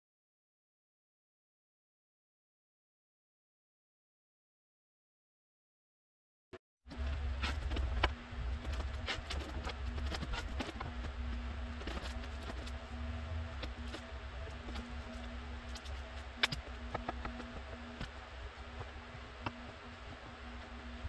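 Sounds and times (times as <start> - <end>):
steady low hum: 6.9 - 21.0.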